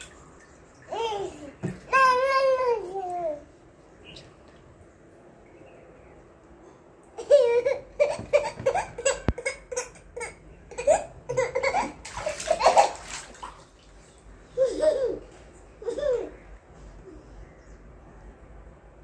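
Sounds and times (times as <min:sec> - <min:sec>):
water splashing: 0:00.0 - 0:02.5, 0:11.6 - 0:14.2
toddler laughing: 0:07.2 - 0:13.0, 0:14.5 - 0:16.5.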